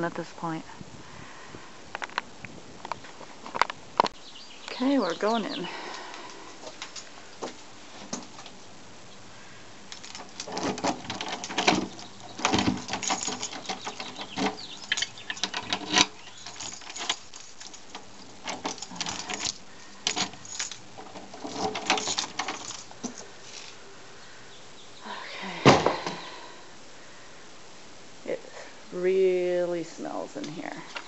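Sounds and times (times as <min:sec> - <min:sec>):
doorknob latch clicking and rattling: 0:10.0 - 0:23.3.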